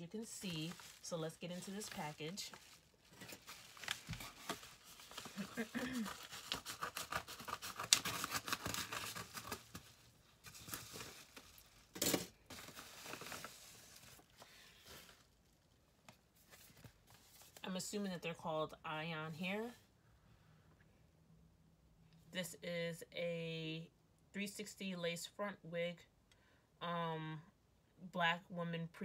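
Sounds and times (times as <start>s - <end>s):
paper mailer tearing and crinkling: 0.2s - 15.1s.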